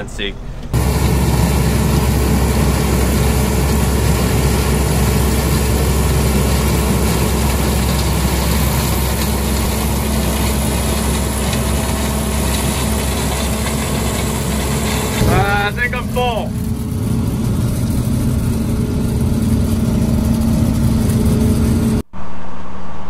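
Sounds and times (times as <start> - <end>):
combine harvester engine drone: 0.0 - 22.1.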